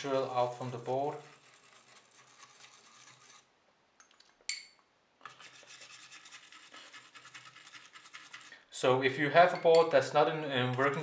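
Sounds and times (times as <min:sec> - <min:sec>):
brush scratching circuit board: 0:00.0 - 0:03.5, 0:05.3 - 0:08.6.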